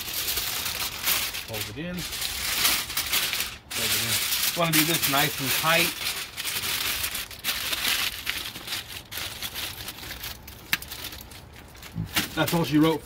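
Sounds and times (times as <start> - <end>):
aluminium foil crinkling: 0.0 - 13.0.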